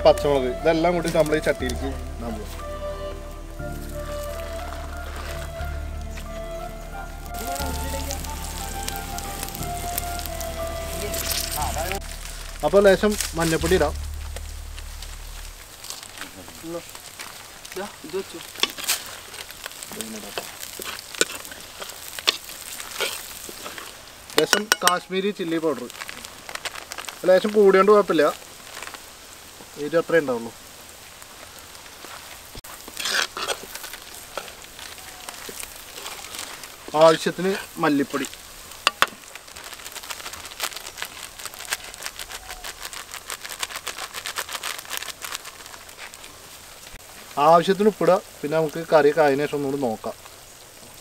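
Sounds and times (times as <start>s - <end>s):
chillies sizzling in hot oil: 0.0s - 51.0s
crackling pops: 0.0s - 51.0s
steel ladle stirring: 18.4s - 25.2s, 32.8s - 37.7s.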